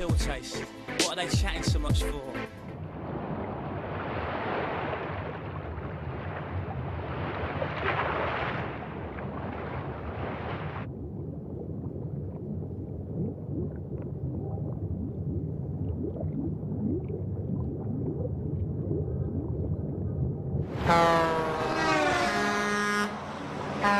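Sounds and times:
low rumble: 0:02.6 - 0:21.7
ocean waves washing: 0:02.8 - 0:10.8, 0:20.7 - 0:23.9.

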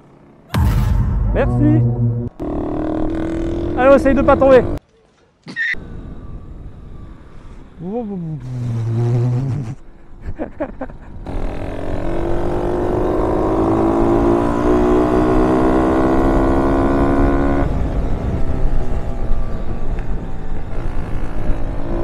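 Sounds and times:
minibike engine revving: 0:11.2 - 0:18.1.

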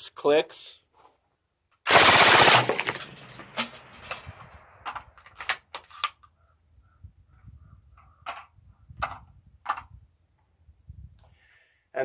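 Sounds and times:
suppressed automatic gunfire: 0:01.9 - 0:03.9.

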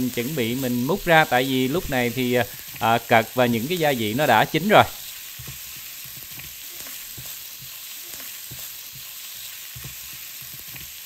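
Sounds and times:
food sizzling in a frying pan: 0:00.0 - 0:11.0
spatula scraping and knocking pan: 0:05.3 - 0:09.1.

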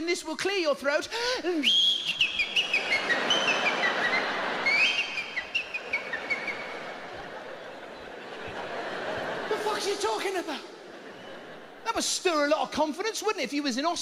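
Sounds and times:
man whistling a tune: 0:01.6 - 0:06.8
audience noise: 0:01.7 - 0:12.8.

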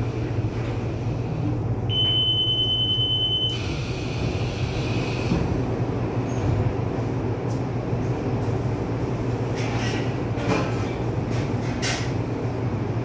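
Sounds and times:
train low hum: 0:00.0 - 0:13.0
train door warning beep: 0:01.9 - 0:04.2.

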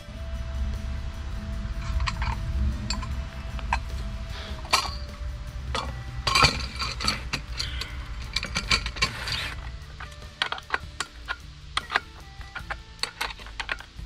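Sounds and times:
metal clamp clinking against pipe: 0:04.6 - 0:14.0.

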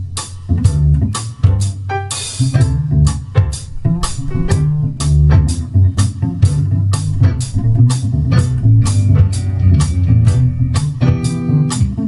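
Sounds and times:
drum kit beat: 0:00.0 - 0:12.0
upright bass: 0:00.0 - 0:12.0
guitar melody: 0:03.5 - 0:12.0.

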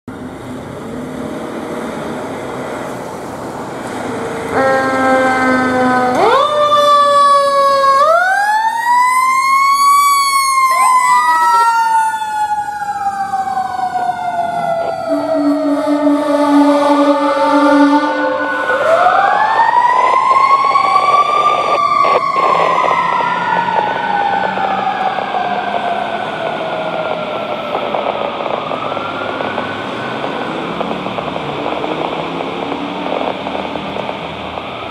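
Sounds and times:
siren wailing: 0:04.3 - 0:34.9
fire truck horn blast: 0:04.5 - 0:06.3, 0:14.9 - 0:19.1
second siren in short wails: 0:04.5 - 0:30.9.

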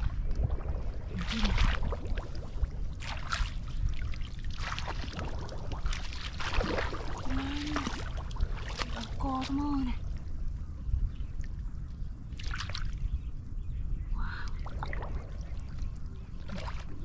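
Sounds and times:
steady low rumble: 0:00.0 - 0:17.0
boots wading through water and mud: 0:01.2 - 0:09.8.

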